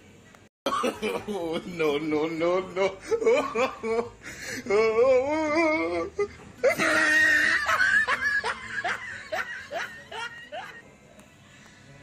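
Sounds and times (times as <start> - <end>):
person laughing: 2.7 - 10.8.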